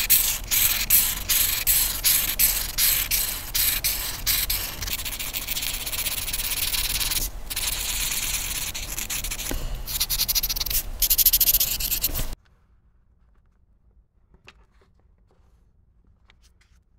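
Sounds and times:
pencil shading on paper: 0.0s - 12.4s.

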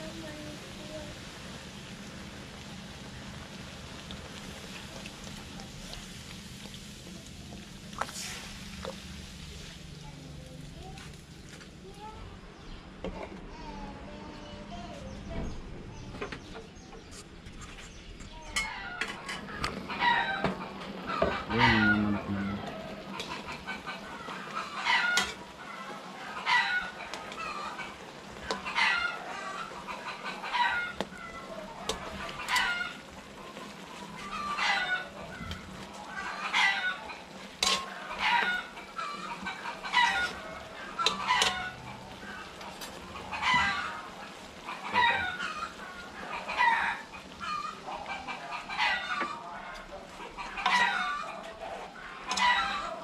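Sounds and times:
chickens clucking: 12.0s - 53.0s.

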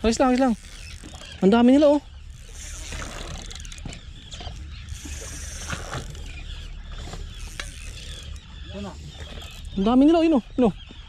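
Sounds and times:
fishing reel clicking: 0.0s - 1.6s, 2.3s - 8.5s.

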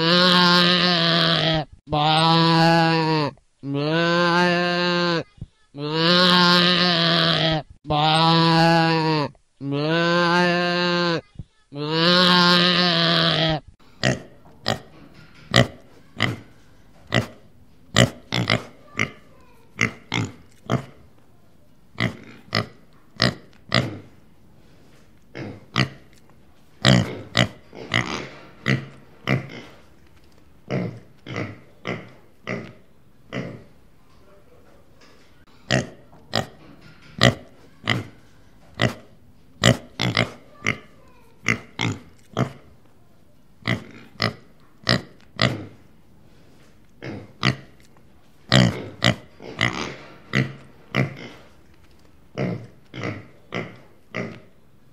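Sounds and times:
pig grunting: 0.0s - 5.2s, 11.8s - 16.5s, 17.1s - 21.0s, 22.0s - 24.1s, 25.3s - 26.0s, 26.8s - 29.8s, 37.2s - 38.2s, 38.8s - 42.7s, 43.6s - 45.8s, 47.0s - 47.7s, 48.5s - 51.5s, 52.4s - 54.5s.

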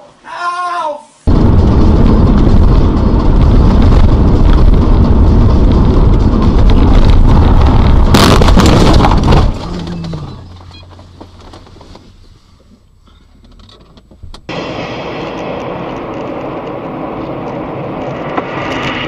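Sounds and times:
car crash impact: 1.3s - 10.5s
car driving noise: 1.3s - 19.0s
road noise of car driving: 1.3s - 19.0s.

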